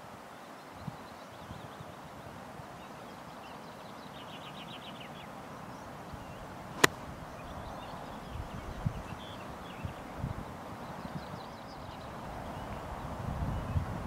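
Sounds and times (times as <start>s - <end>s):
outdoor background noise: 0.0s - 14.0s
golf club striking ball: 6.8s - 7.1s.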